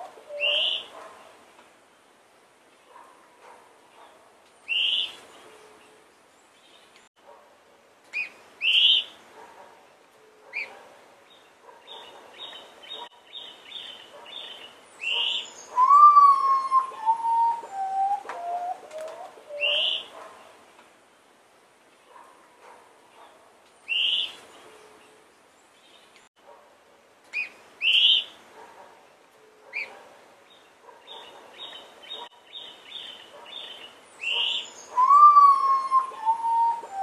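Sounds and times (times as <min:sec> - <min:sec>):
potoo mournful whistles: 0:15.8 - 0:18.8, 0:35.0 - 0:37.0
birds short sharp calls: 0:31.0 - 0:37.0.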